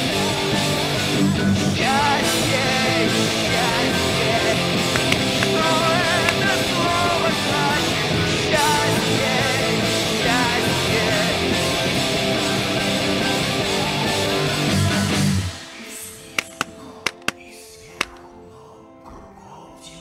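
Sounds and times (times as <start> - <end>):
rock music with guitar: 0.0 - 15.7.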